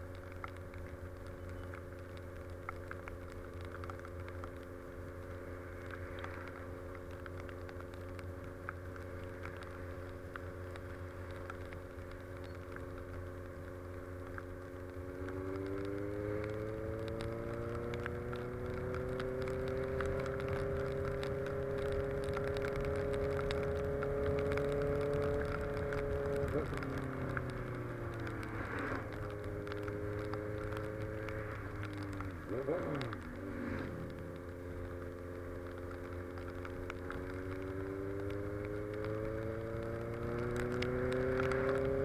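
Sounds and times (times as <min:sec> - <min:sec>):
motorcycle engine revving: 0:15.0 - 0:42.0.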